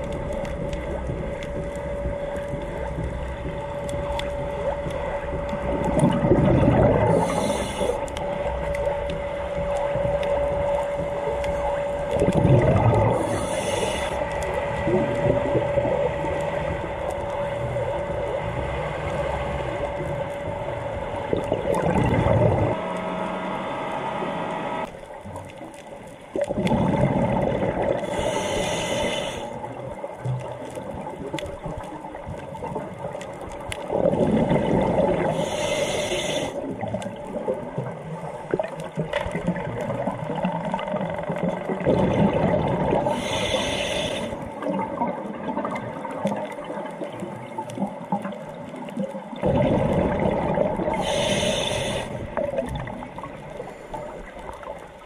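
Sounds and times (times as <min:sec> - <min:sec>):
exhaled bubbles burbling: 0:00.0 - 0:23.0, 0:24.8 - 0:28.7, 0:29.6 - 0:55.0
underwater water noise: 0:00.0 - 0:55.0
regulator hiss: 0:07.0 - 0:08.6, 0:13.2 - 0:14.7, 0:28.0 - 0:29.7, 0:35.2 - 0:36.7, 0:43.0 - 0:44.6, 0:50.9 - 0:52.5.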